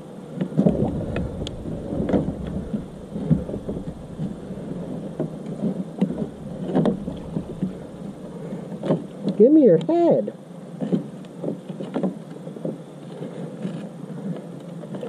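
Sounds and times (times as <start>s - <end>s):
low handling rumble: 0.6s - 9.2s
water splashing: 0.6s - 9.3s.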